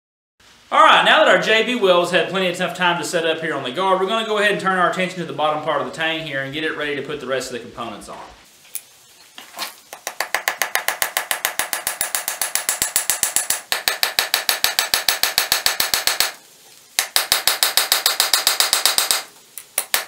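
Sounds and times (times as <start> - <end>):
hammer tapping metal on anvil: 9.9 - 16.4, 17.0 - 20.0.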